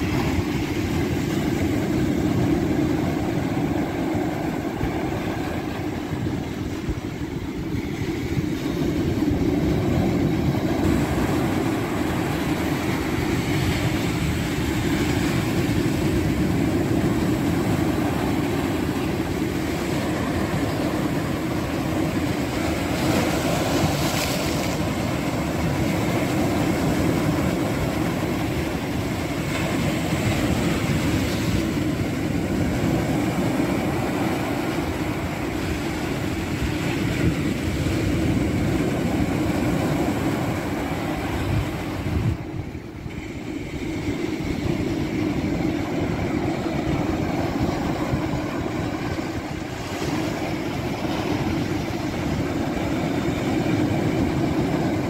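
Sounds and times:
surf breaking on rocky shore: 0.0 - 55.0.

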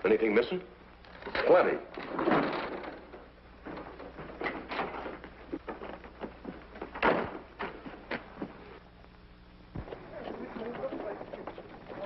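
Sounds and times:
door opening and shutting: 1.2 - 5.2, 6.9 - 7.8
footsteps on wooden boards: 3.0 - 8.7.

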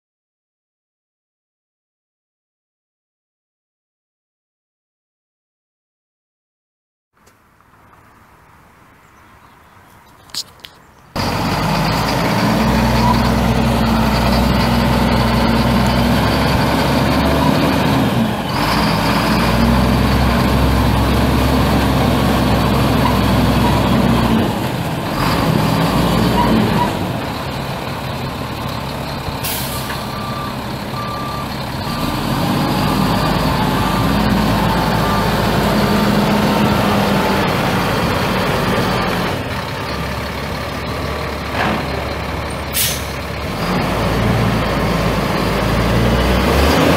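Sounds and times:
diesel truck engine running: 11.1 - 46.9
air brake hisses: 29.4 - 30.0, 42.7 - 43.2
backup alarm beeping: 30.1 - 32.2.

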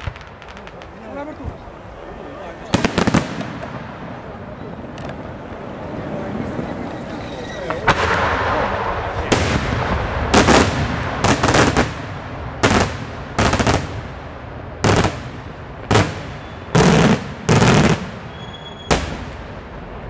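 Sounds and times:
rapid firework cracks: 0.0 - 1.1, 2.7 - 4.2, 7.9 - 19.8
fireworks bursting with sharp bangs: 0.0 - 20.0.

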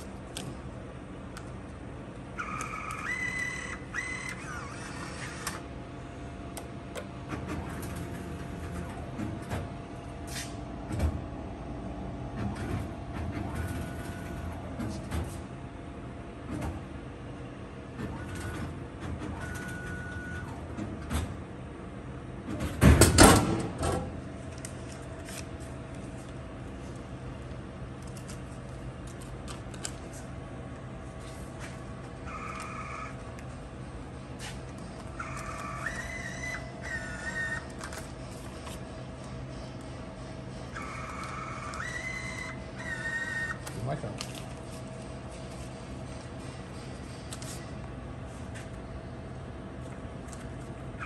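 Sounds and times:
vending machine hum: 0.0 - 51.0
bill validator whirr: 2.2 - 5.8, 12.3 - 15.0, 32.1 - 44.2.

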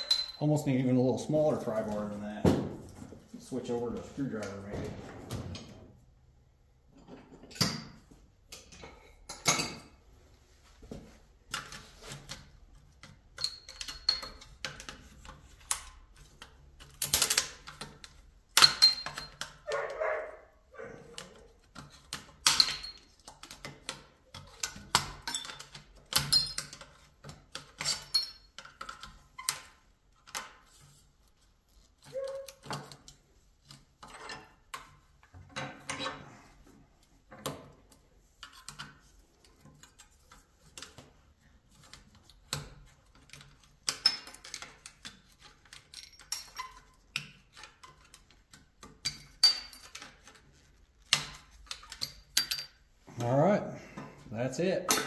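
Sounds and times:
screwdriver clinking on metal: 0.0 - 0.7, 13.0 - 20.1, 21.1 - 30.9, 31.7 - 36.2, 41.7 - 52.9.

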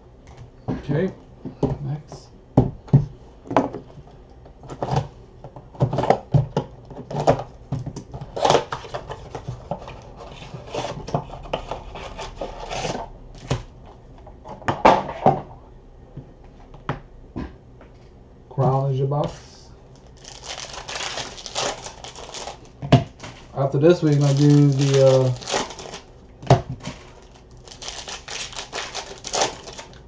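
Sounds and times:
scraping and crinkling packaging: 5.8 - 14.0, 19.3 - 30.0.

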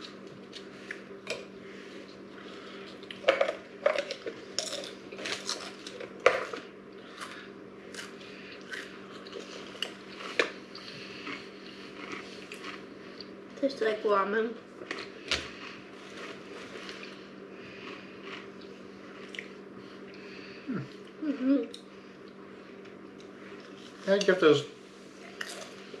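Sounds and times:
crisps crunching: 2.9 - 13.4, 14.8 - 19.6.

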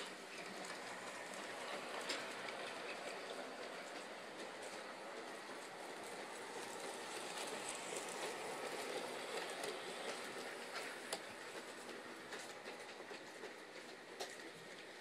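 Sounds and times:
model train wheels rumbling: 0.0 - 15.0.

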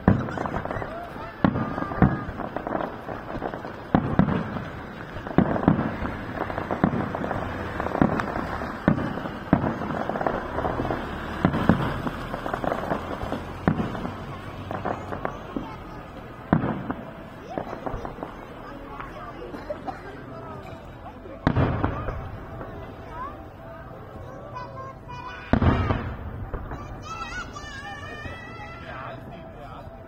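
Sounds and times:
firework shells bursting: 0.0 - 19.2
rumble of lesser bangs: 0.0 - 20.0, 20.6 - 28.7.

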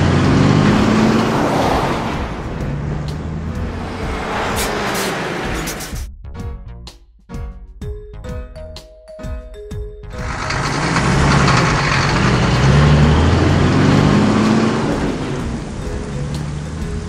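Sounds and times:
cartoon bus engine running: 0.0 - 6.1, 10.0 - 17.0
plucked music notes: 10.0 - 17.0
heavy rain: 10.2 - 17.0.

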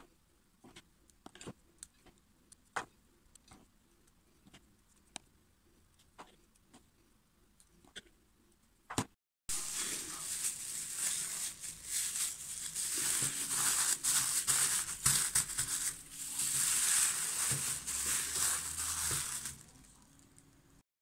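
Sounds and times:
plastic bag crinkling: 9.5 - 20.4.

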